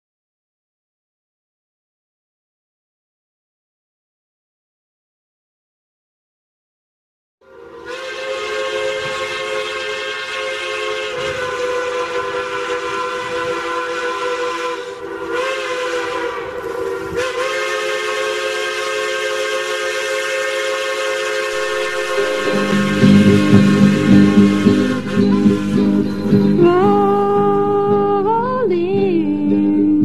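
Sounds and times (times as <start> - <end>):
steam locomotive whistle: 7.4 - 28.0
steam hissing: 7.9 - 26.6.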